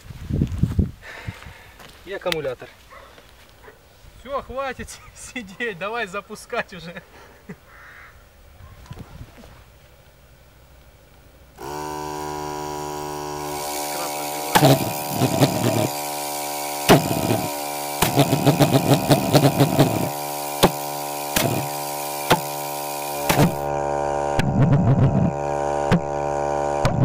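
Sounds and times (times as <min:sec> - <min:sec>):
steady electrical buzz: 0:11.4 - 0:27.0
igniter cracking and popping: 0:14.3 - 0:23.7.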